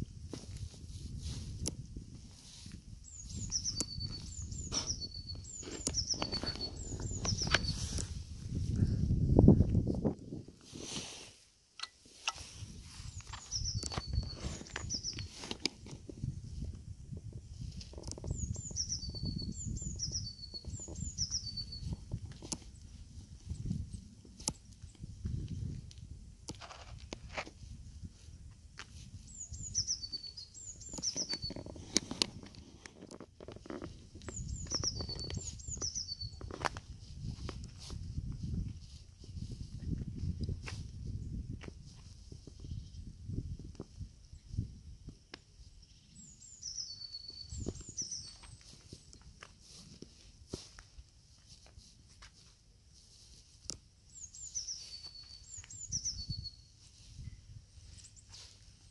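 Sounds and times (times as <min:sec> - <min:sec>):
songbird singing: 0:02.8 - 0:09.1, 0:12.9 - 0:16.4, 0:17.9 - 0:25.5, 0:29.1 - 0:37.0, 0:42.3 - 0:43.4, 0:44.0 - 0:49.5, 0:53.7 - 0:58.9.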